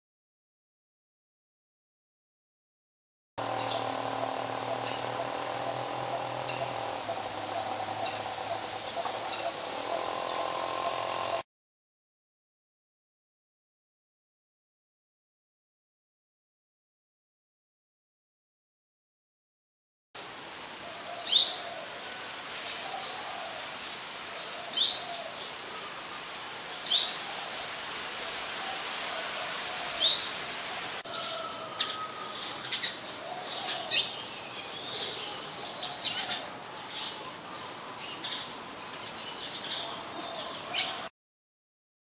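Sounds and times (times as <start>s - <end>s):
sunbird calling: 3.4s - 11.4s, 20.8s - 41.1s.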